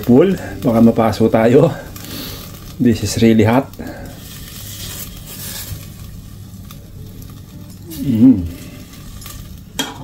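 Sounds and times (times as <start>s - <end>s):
chicken sizzling: 0.0s - 10.0s.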